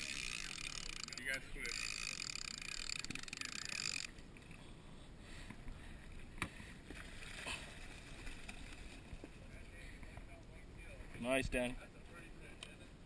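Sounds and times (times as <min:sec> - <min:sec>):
fishing reel buzzing: 0:00.0 - 0:04.1.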